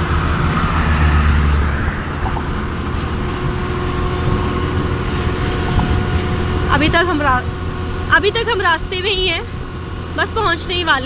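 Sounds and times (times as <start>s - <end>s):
wind noise on microphone: 0.0s - 8.6s
scooter engine running: 0.0s - 11.0s.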